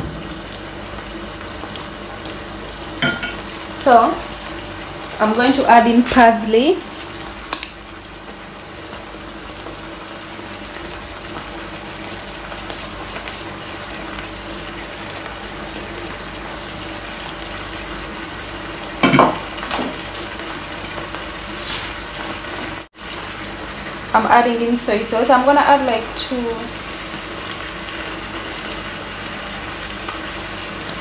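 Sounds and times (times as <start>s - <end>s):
food sizzling in a frying pan: 0.0s - 31.0s.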